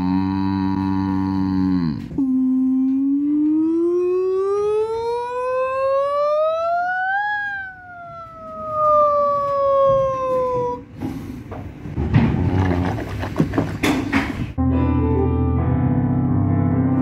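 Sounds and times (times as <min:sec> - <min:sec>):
wailing siren-like tone: 0:02.6 - 0:10.0.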